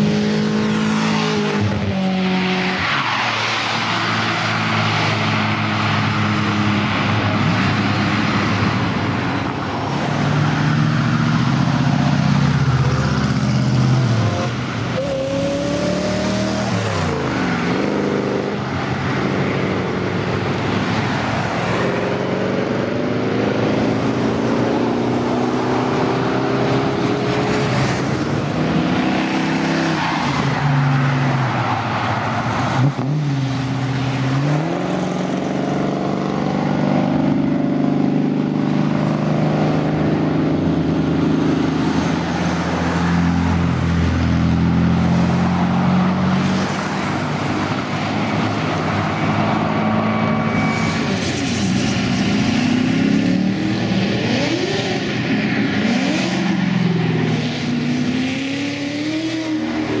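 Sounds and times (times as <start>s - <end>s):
car engines driving off: 0.0s - 60.0s
engine revving: 10.5s - 18.6s, 50.5s - 60.0s.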